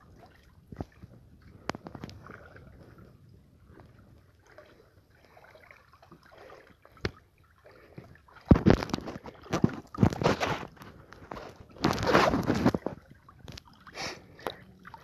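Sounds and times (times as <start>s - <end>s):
water splashing from wading: 0.0s - 15.0s.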